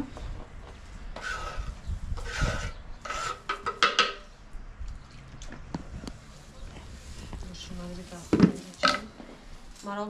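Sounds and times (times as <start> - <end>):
utensil scraping food: 1.1 - 4.1.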